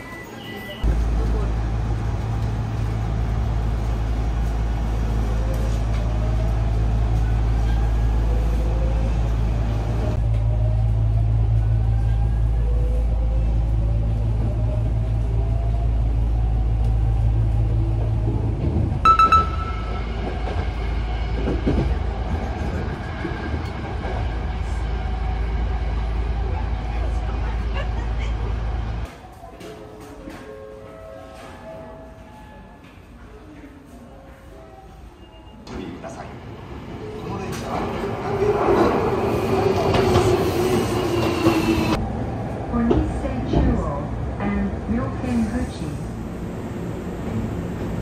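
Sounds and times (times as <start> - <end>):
electric train rumbling: 0.0 - 29.2, 34.4 - 48.0
short sharp high tone: 19.1 - 20.2.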